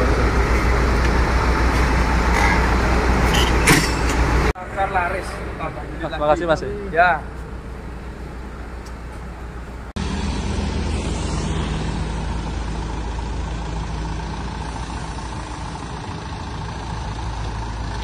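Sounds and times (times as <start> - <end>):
diesel van engine at low speed: 0.0 - 18.0.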